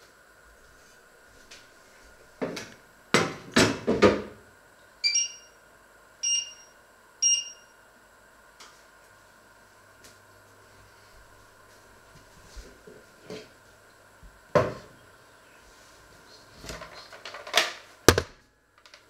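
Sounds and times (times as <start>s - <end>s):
short electronic beeps: 5.0s - 5.5s, 6.2s - 7.7s.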